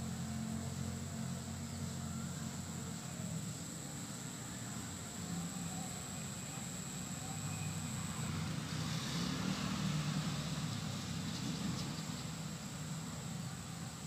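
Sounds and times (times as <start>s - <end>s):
distant road traffic rumble: 4.0s - 14.0s.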